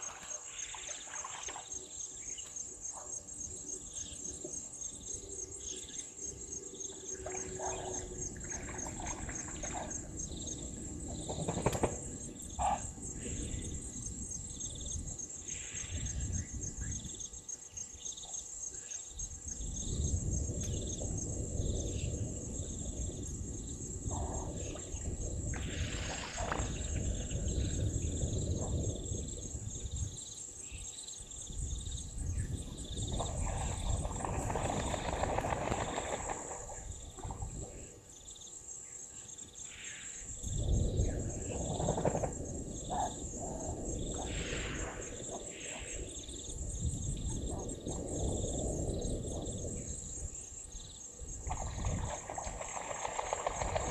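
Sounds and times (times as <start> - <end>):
insect chorus: 0.0 - 53.9
wind rumble on microphone: 5.0 - 17.5, 18.2 - 38.1, 40.2 - 53.9
goose splashing in water: 33.4 - 36.8, 51.5 - 53.9.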